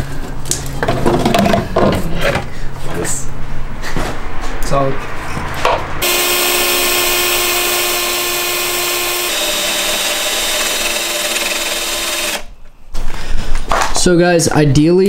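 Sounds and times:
cordless drill drilling into steel: 6.0 - 12.5.

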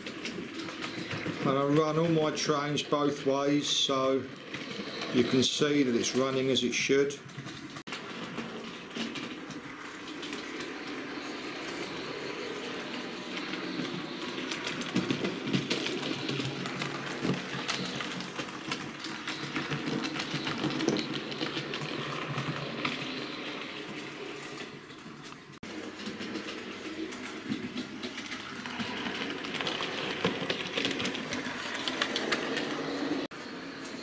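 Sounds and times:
wheels clicking over rail joints: 0.0 - 34.0
model train motor whirring: 7.9 - 25.4, 26.0 - 33.3.

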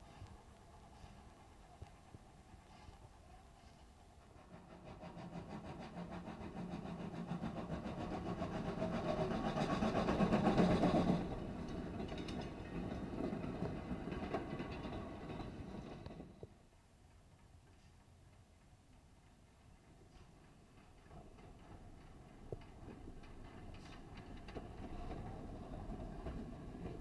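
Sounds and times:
steam locomotive exhaust beat: 0.0 - 15.3
wagon wheels clicking on rail joints: 0.1 - 27.0.

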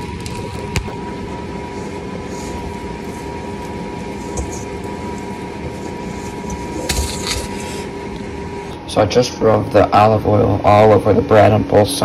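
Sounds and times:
hands handling sticky dough: 0.0 - 8.0
background hum and hiss: 0.0 - 12.0.

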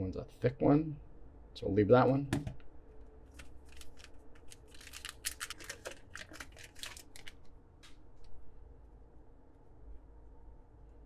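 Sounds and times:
card pack wrapper crinkling: 3.3 - 7.5.

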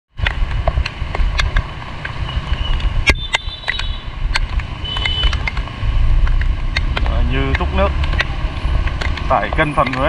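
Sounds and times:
wind buffeting microphone: 0.1 - 10.0
raindrops ticking: 0.2 - 10.0.

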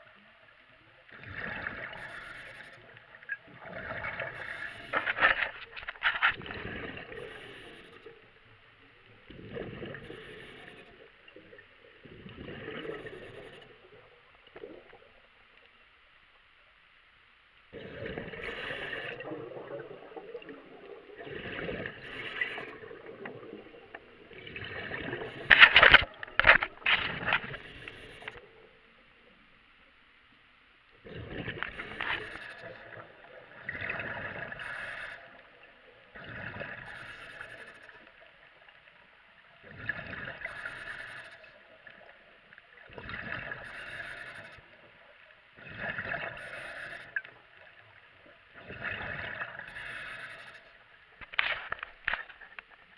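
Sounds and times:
exhaled bubbles underwater: 0.0 - 15.5, 17.7 - 28.9, 30.9 - 50.6.

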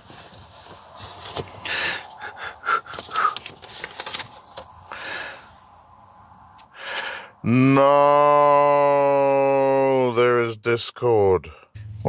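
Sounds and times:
man breathing close to microphone: 1.1 - 3.8, 4.8 - 5.8, 6.6 - 7.4
sniffs: 1.6 - 3.6.

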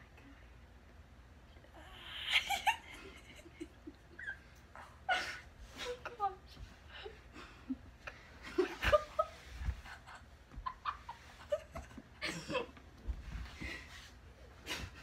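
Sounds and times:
stifled giggling: 2.1 - 6.2, 7.0 - 15.0.

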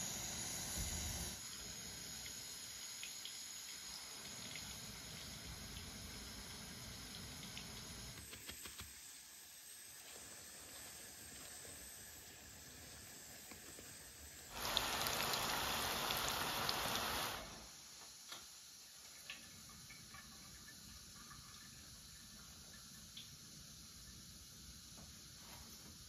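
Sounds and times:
gas burner hiss: 0.0 - 18.7
oil sizzling in frying pan: 13.1 - 21.2.

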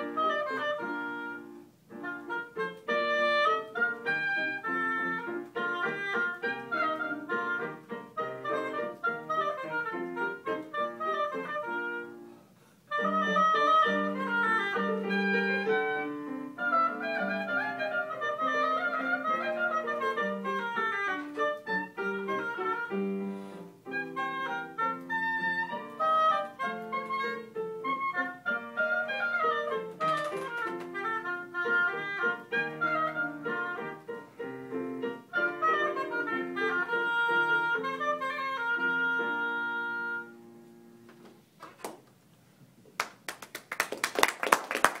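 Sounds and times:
oboe playing: 0.0 - 40.8
piano accompaniment: 0.0 - 42.0
audience clapping: 42.9 - 45.0.

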